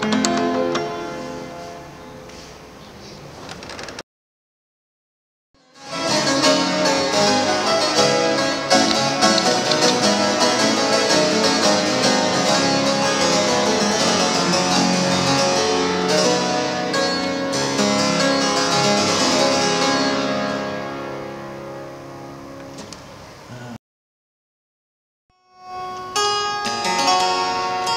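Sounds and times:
harpsichord playing quick notes: 5.8 - 22.6, 25.5 - 27.9.

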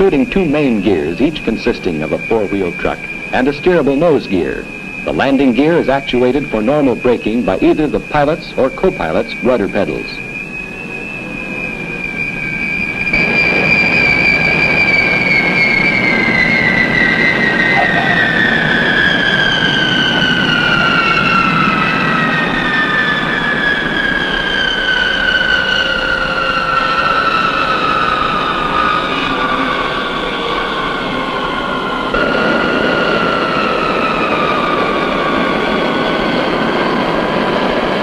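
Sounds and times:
jet engines whining: 0.0 - 38.0
rush of jet noise: 13.1 - 23.7, 32.1 - 38.0.

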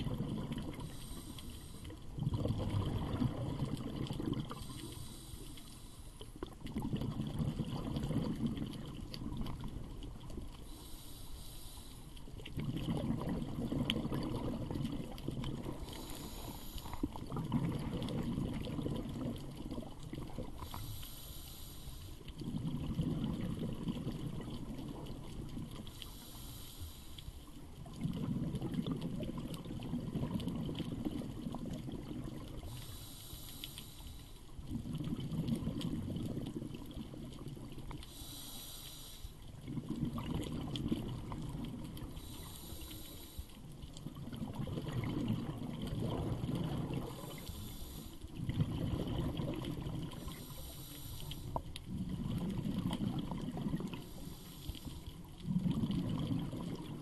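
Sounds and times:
exhaled air bubbling: 0.0 - 26.3, 27.4 - 57.0
regulator inhale hiss: 0.8 - 2.1, 4.5 - 6.4, 10.6 - 12.4, 15.7 - 17.2, 20.6 - 22.4, 25.8 - 27.5, 32.6 - 34.6, 38.0 - 39.5, 42.1 - 43.7, 47.0 - 48.4, 50.1 - 51.7, 54.0 - 55.1.

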